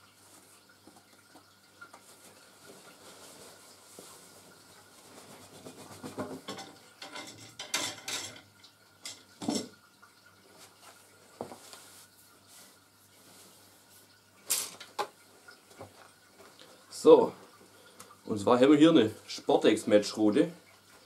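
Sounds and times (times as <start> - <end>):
cloth rustling and rubbing: 2.0 - 6.4, 10.6 - 14.2.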